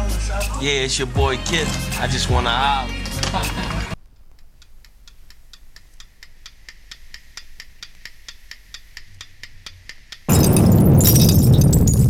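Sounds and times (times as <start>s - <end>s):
clock ticking: 4.1s - 10.3s.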